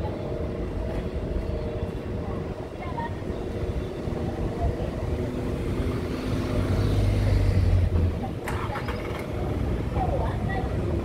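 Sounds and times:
street noise: 0:00.0 - 0:11.0.

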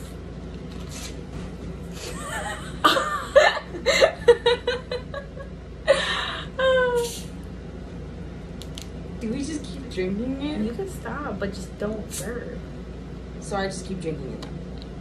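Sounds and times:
women laughing: 0:02.0 - 0:07.2.

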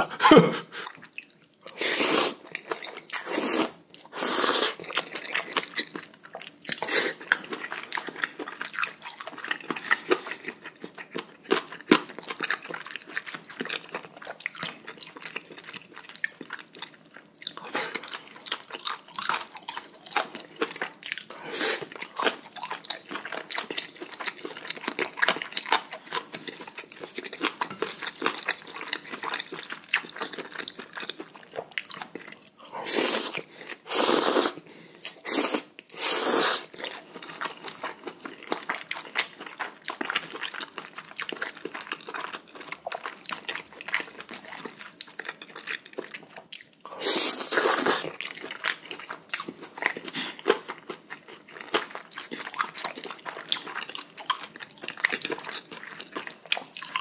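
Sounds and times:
wet chewing and crunching: 0:00.8 - 0:01.8, 0:02.4 - 0:32.7, 0:33.3 - 0:57.0
noodles slurping: 0:03.2 - 0:05.0, 0:47.0 - 0:48.2.

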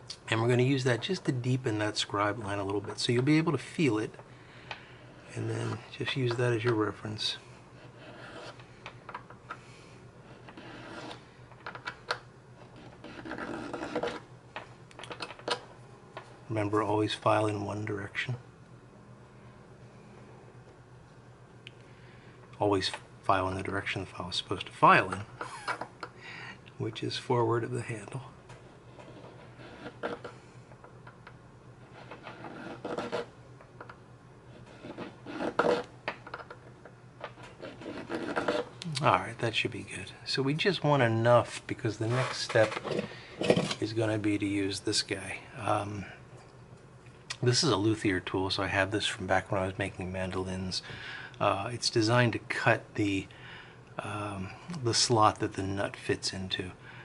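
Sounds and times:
needle file rasping on acrylic: 0:07.8 - 0:08.6, 0:10.3 - 0:11.2, 0:12.7 - 0:14.2, 0:29.0 - 0:30.3, 0:31.8 - 0:33.3, 0:34.5 - 0:35.9, 0:37.5 - 0:38.7
file rasping: 0:31.9 - 0:33.3, 0:34.6 - 0:35.9, 0:37.6 - 0:38.7.

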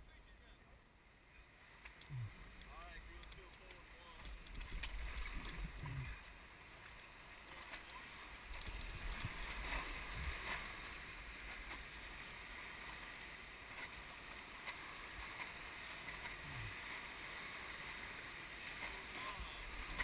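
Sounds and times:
low rumble: 0:02.0 - 0:03.2.

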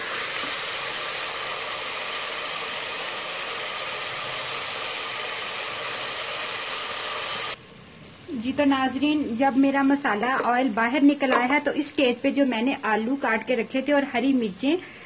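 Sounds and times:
food sizzling in a pot: 0:00.0 - 0:07.6.

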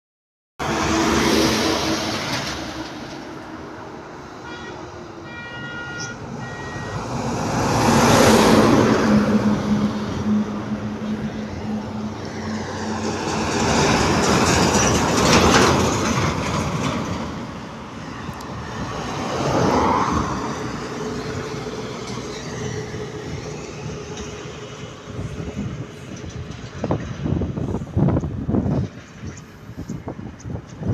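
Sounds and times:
heavy trucks passing: 0:00.6 - 0:30.9
vehicle horn toots: 0:04.4 - 0:07.2.

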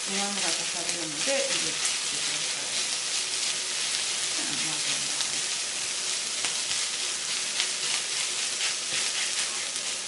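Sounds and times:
rice sizzling in frying pan: 0:00.0 - 0:10.0
spatula scraping pan: 0:00.1 - 0:10.0.

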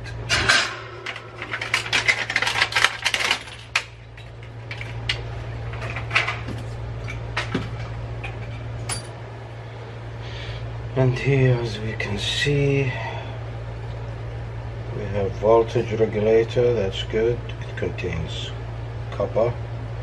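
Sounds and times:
steady low hum: 0:00.0 - 0:20.0
small parts clicking and clattering: 0:00.4 - 0:09.1.

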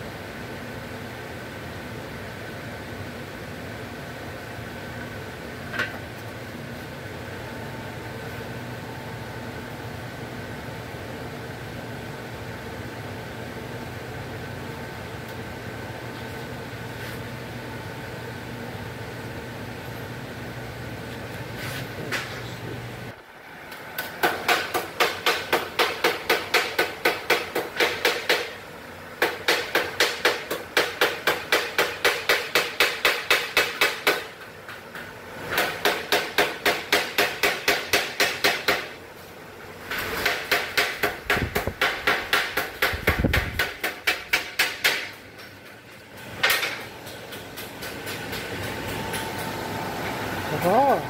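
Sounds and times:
hammer blows on sheet steel: 0:24.0 - 0:28.6, 0:29.2 - 0:34.4, 0:35.5 - 0:39.0, 0:40.0 - 0:45.4.

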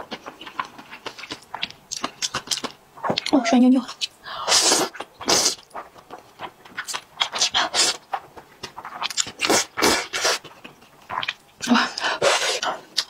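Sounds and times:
wet noodle slurps: 0:04.4 - 0:08.2, 0:08.9 - 0:10.5, 0:12.2 - 0:12.7.

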